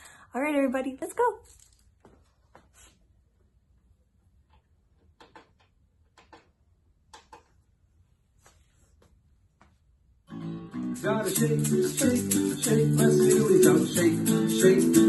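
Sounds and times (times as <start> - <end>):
faint clicks and rattles: 4.4 - 7.7
children's song with acoustic guitar: 10.3 - 15.0.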